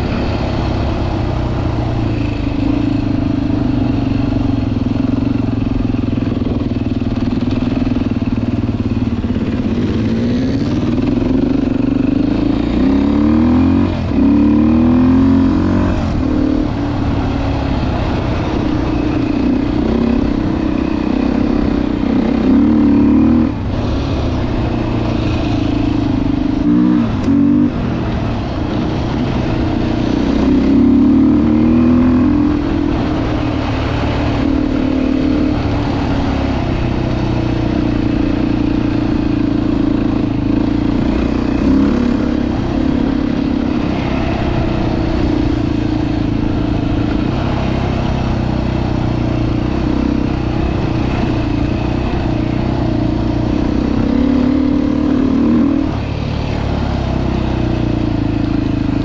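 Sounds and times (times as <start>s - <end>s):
dirt bike engine running: 0.0s - 59.0s.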